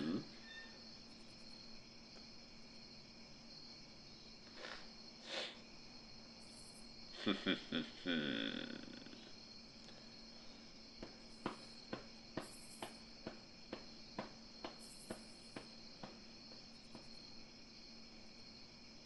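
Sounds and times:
faint hiss: 3.7 - 11.8
light quick footsteps: 10.9 - 17.3.

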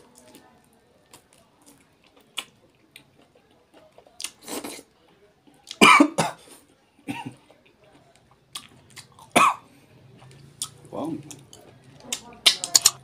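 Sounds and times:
chewing mouth clicks: 10.2 - 13.0.

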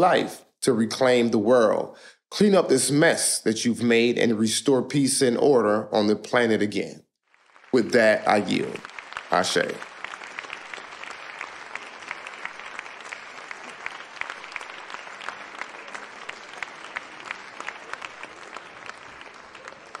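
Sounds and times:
audience applauding: 7.3 - 20.0.

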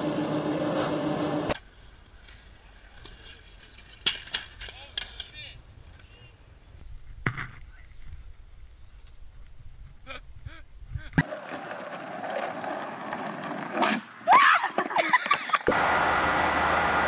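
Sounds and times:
skateboard wheels rolling on asphalt: 0.0 - 10.0, 11.2 - 17.0
skateboarder crashing onto pavement: 11.2 - 15.7.

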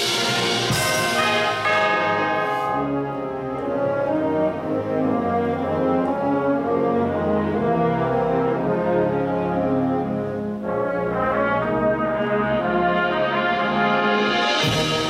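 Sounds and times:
wind band playing chords: 0.0 - 15.0.

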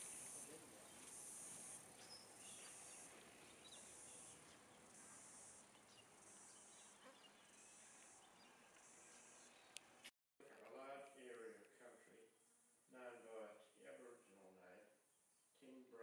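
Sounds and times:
high-pitched insect chorus pulsing: 0.0 - 3.2, 3.8 - 8.2
faint bird chirps: 0.0 - 9.8.

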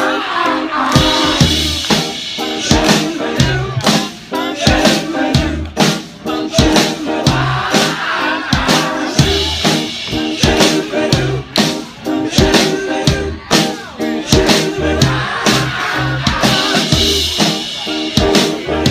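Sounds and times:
bass line: 0.0 - 18.9
drum kit beat: 0.0 - 18.9
live band playing loud music: 0.0 - 18.9.

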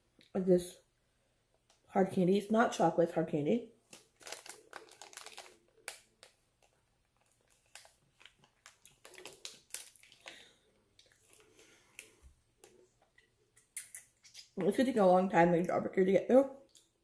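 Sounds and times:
plastic wrapper crinkling: 3.8 - 12.8.

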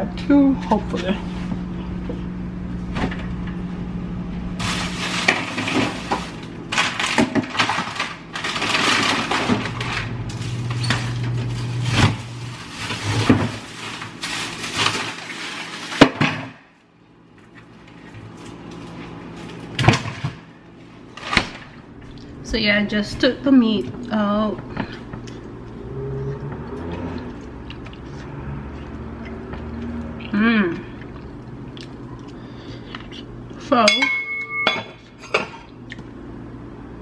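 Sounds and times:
plastic packaging rustling: 4.6 - 16.2.

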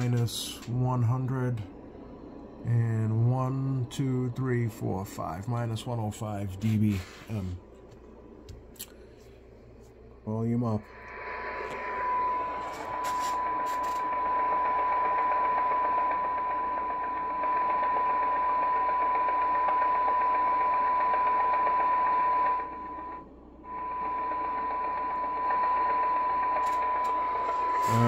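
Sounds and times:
steady test tone: 0.0 - 7.6, 10.2 - 28.0
radio hiss: 2.6 - 7.6, 10.3 - 14.5, 27.2 - 28.0.

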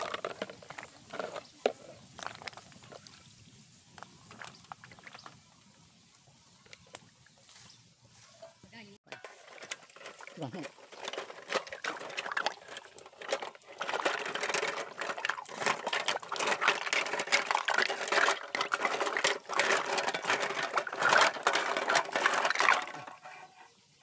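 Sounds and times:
shells clattering in a metal pot: 9.1 - 23.3
water sloshing: 9.1 - 23.5.

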